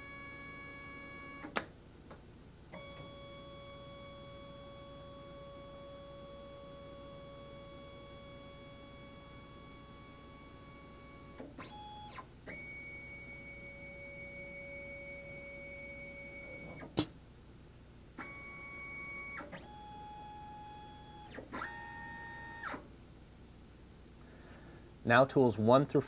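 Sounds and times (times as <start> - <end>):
sharp click of spindle: 16.7 - 17.1.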